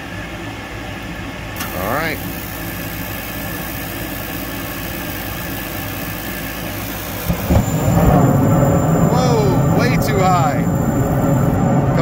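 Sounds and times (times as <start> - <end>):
inducer motor hum: 1.5 - 12.0
burners low rumble: 6.7 - 12.0.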